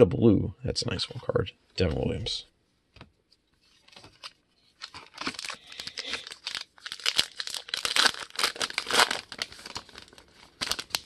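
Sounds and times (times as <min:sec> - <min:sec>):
wrapper tearing and crinkling: 0:04.0 - 0:11.0.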